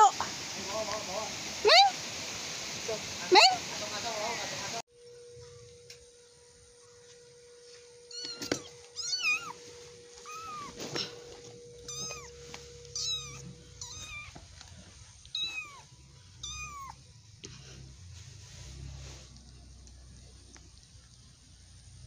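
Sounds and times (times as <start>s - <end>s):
kitten mewing: 11.8s - 14.5s, 15.2s - 17.0s.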